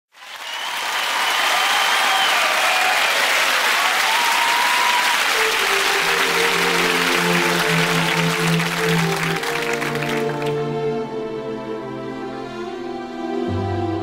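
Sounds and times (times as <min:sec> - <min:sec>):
audience applauding and cheering: 0:00.1 - 0:10.8
music with held notes: 0:05.2 - 0:14.0.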